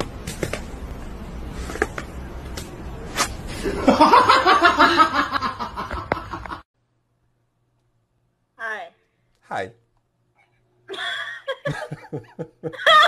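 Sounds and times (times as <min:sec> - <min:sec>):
person laughing hard: 0:10.9 - 0:13.0.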